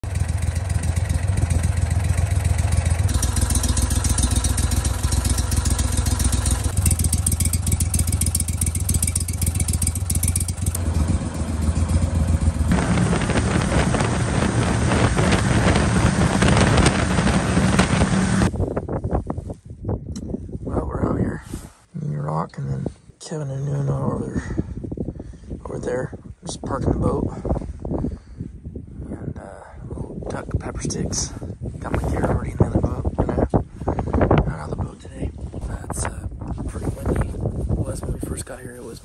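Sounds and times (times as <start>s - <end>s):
boat motor running: 0.0s - 18.5s.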